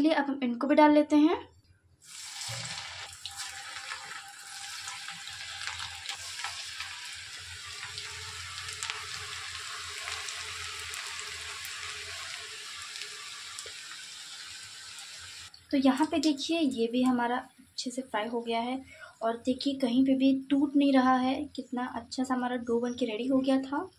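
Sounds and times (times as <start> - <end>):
dough deep-frying in oil: 2.0 - 16.8.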